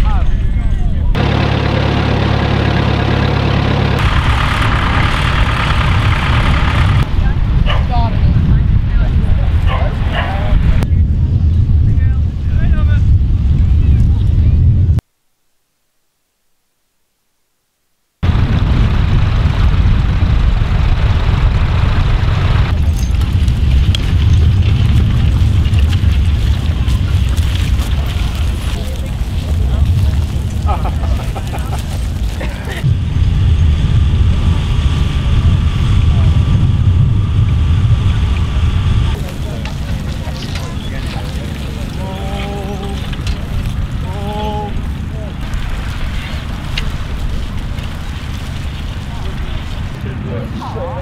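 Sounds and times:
tractor engine idling: 0:01.2 - 0:07.3, 0:18.2 - 0:23.6, 0:38.3 - 0:51.0
wind rumble on microphone: 0:04.0 - 0:15.0, 0:18.2 - 0:51.0.

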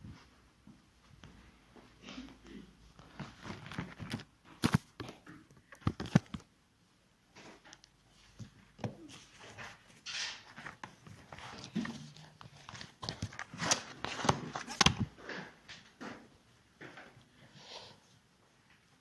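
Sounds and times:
rustling: 0:02.9 - 0:06.5, 0:07.4 - 0:15.5.

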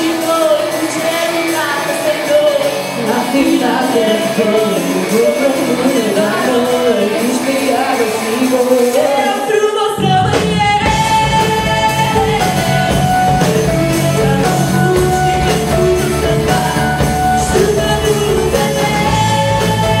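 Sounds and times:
bass and drums: 0:00.0 - 0:20.0
electric guitar: 0:00.0 - 0:20.0
keyboard playing: 0:00.0 - 0:20.0
woman singing: 0:00.0 - 0:20.0.

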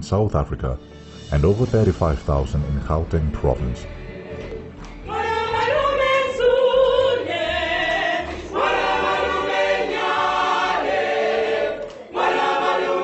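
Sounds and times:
choir singing: 0:03.4 - 0:13.0.

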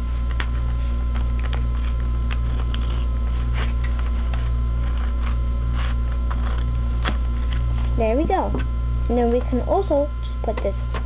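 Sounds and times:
loud electrical hum: 0:00.0 - 0:11.0
scissors snipping paper: 0:00.3 - 0:07.2.

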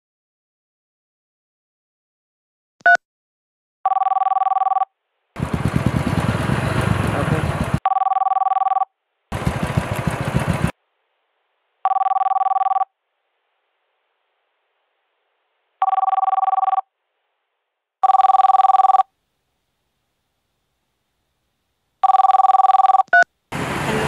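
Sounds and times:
telephone ringing tone: 0:03.8 - 0:04.9, 0:07.8 - 0:08.9, 0:11.8 - 0:12.9, 0:15.8 - 0:16.9, 0:18.0 - 0:19.1, 0:22.0 - 0:23.3.

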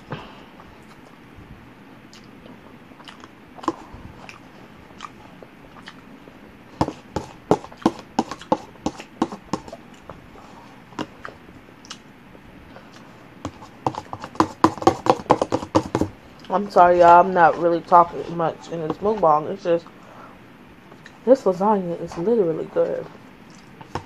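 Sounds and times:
wet mouth chewing clicks: 0:02.1 - 0:02.4, 0:03.0 - 0:04.4, 0:05.0 - 0:06.0, 0:11.2 - 0:12.1, 0:23.4 - 0:23.8.

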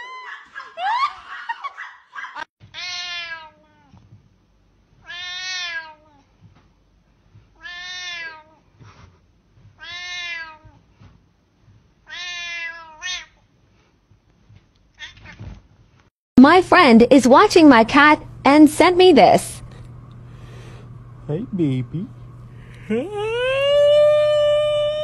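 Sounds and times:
cat meowing: 0:02.8 - 0:03.9, 0:05.0 - 0:06.1, 0:07.6 - 0:08.5, 0:09.8 - 0:10.7, 0:12.1 - 0:13.3.

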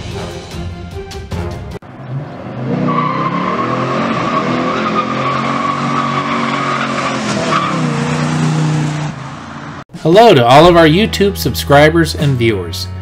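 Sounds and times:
high tyre squeal: 0:02.0 - 0:09.8.

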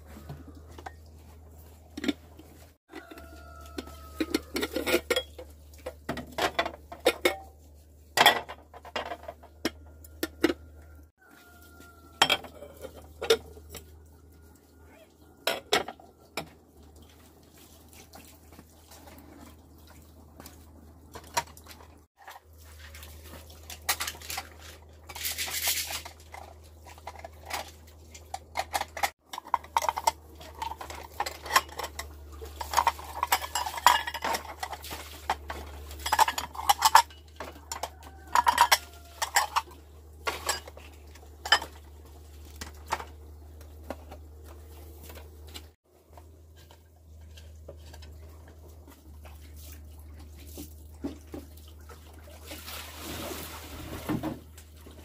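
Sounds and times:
pots and pans clattering: 0:03.0 - 0:10.6, 0:12.2 - 0:13.9, 0:15.4 - 0:16.6, 0:23.6 - 0:48.6.

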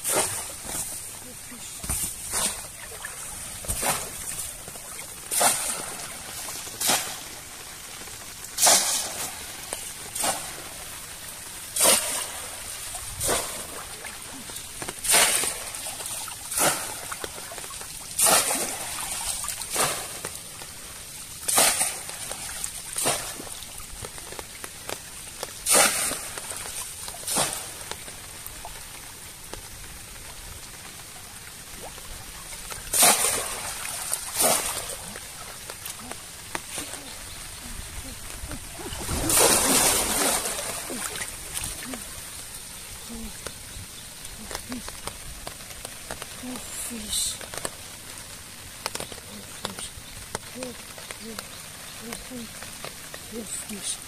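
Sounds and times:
water sloshing: 0:00.0 - 0:47.6
fish trap splashing into water: 0:01.8 - 0:07.3, 0:08.6 - 0:09.4, 0:11.8 - 0:13.8, 0:14.7 - 0:20.4, 0:21.4 - 0:24.0, 0:25.6 - 0:28.0, 0:32.7 - 0:35.8, 0:38.8 - 0:41.9.

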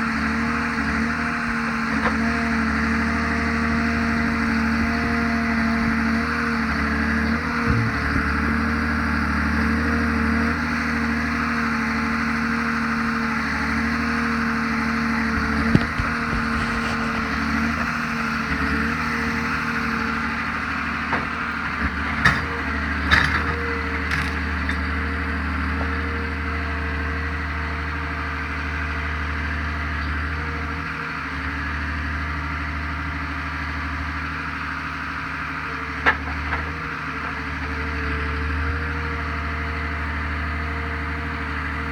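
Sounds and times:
diesel engine running: 0:00.0 - 0:41.9
logs knocking: 0:07.2 - 0:08.7, 0:15.3 - 0:18.1.

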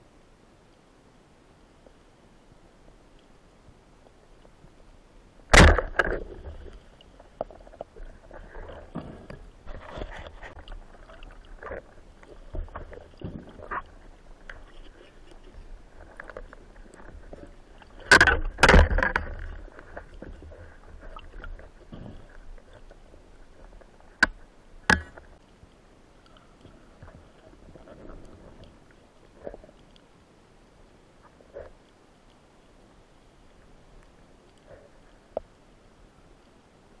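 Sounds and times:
faint ticks: 0:03.1 - 0:04.9, 0:19.1 - 0:30.3, 0:30.9 - 0:35.6.

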